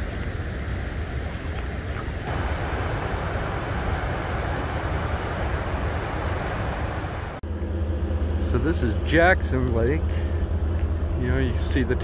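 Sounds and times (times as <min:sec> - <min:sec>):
water rushing through dam outlet: 0:02.2 - 0:07.4.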